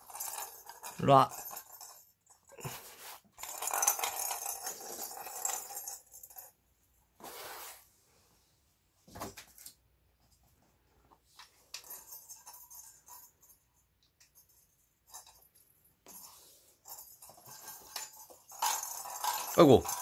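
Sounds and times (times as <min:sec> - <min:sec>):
ball rattling inside toy: 0:00.0 - 0:02.6, 0:03.4 - 0:06.6, 0:11.6 - 0:20.0
plastic toy rustling and rattling: 0:00.0 - 0:06.6, 0:11.2 - 0:20.0.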